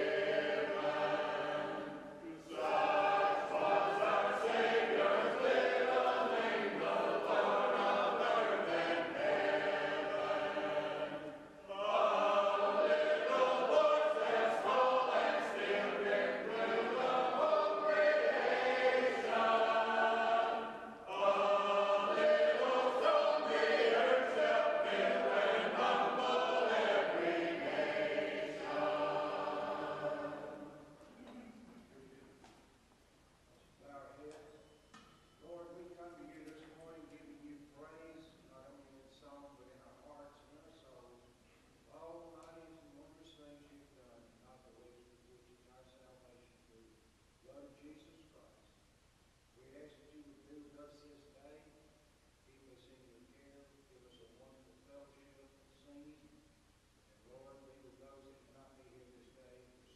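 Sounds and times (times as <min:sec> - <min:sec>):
group singing a hymn in harmony: 0:00.0 - 0:31.0.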